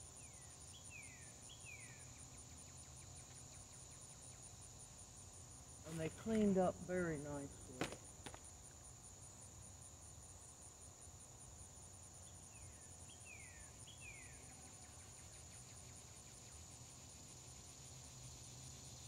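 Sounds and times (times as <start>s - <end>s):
crickets chirping: 0.0s - 19.0s.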